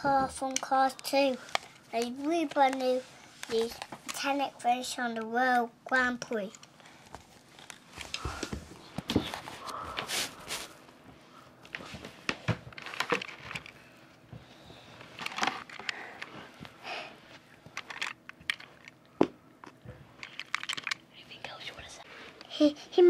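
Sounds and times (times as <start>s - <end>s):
toy car handling on carpet: 17.7s - 18.9s.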